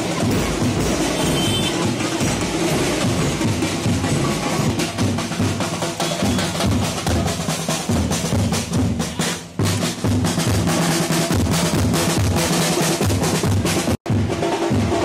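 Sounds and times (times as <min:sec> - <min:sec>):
drum-driven music: 0:00.0 - 0:15.0.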